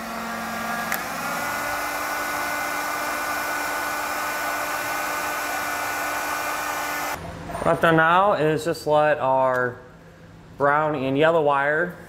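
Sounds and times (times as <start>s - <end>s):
heat gun blowing: 0.0s - 7.2s.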